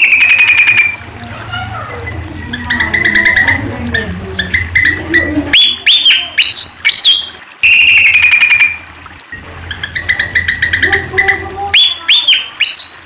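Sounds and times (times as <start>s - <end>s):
loud rising whistled bird notes: 0.0s - 1.1s, 4.4s - 8.9s, 9.6s - 13.0s
fast high bird trill: 0.0s - 3.6s, 4.4s - 8.9s, 9.6s - 13.0s
bird singing squeaky chirps: 0.0s - 8.9s, 9.6s - 13.0s
low background hum: 0.0s - 13.0s.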